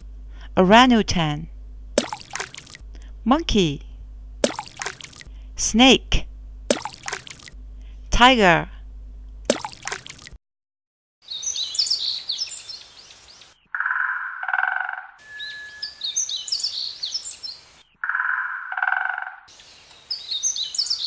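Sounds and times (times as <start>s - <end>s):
birds chirping and twittering: 11.2s - 21.0s
low buzzy bird call: 11.2s - 21.0s.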